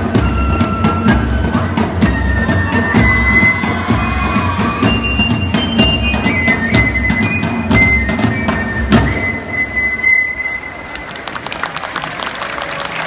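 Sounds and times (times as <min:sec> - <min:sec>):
steady drumbeats: 0:00.0 - 0:09.9
high flute melody: 0:00.0 - 0:11.2.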